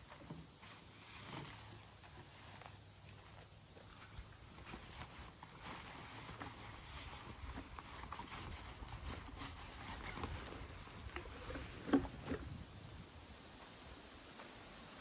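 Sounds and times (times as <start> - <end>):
gear rustling: 0.6 - 12.4.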